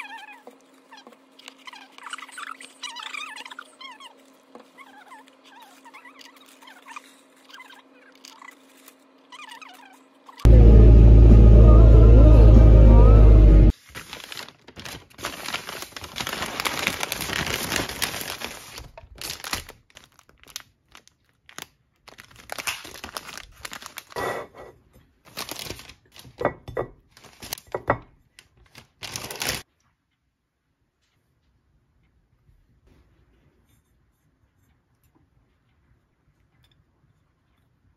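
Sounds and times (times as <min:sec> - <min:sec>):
crinkling and rustling: 0:13.7 - 0:29.9.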